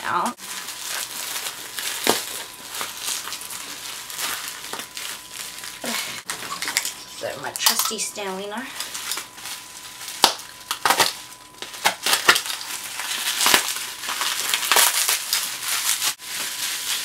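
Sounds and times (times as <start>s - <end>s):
bubble wrap crinkling and popping: 0.0s - 7.9s, 8.6s - 17.0s.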